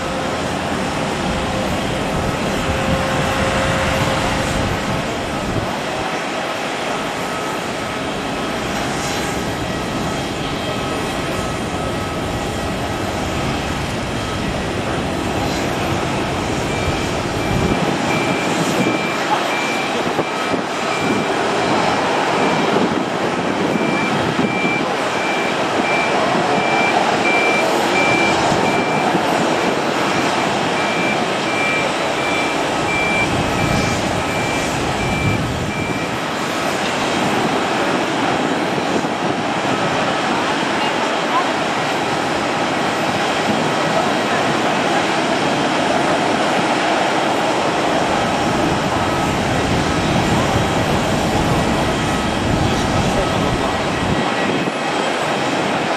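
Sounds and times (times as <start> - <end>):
reversing alarm beeping: 0.0 - 37.3, 48.1 - 54.9
jet aircraft taxiing: 0.0 - 55.9.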